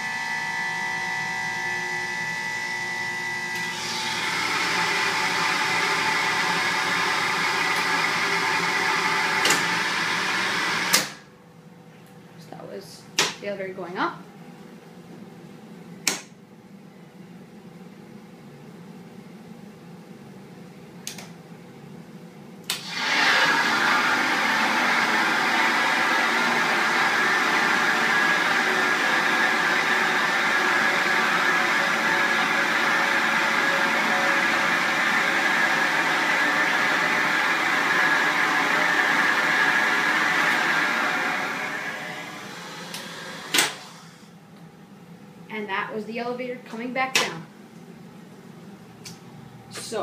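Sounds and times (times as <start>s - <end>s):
steady electrical hum: 43.5s - 50.0s.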